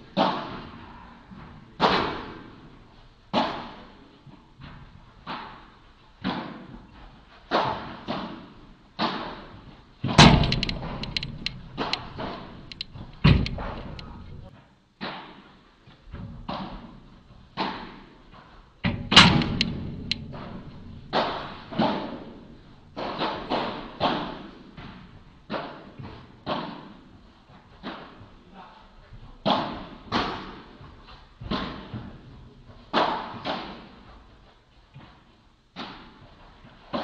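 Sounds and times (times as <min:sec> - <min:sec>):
heavy deep thuds: 0:10.2 - 0:14.5, 0:18.9 - 0:24.0.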